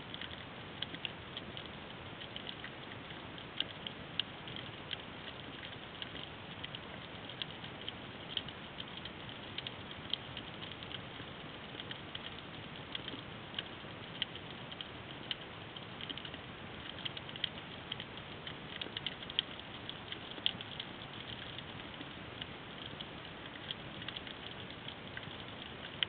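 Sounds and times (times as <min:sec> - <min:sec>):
crackle of sharp clicks: 0:00.0 - 0:26.0.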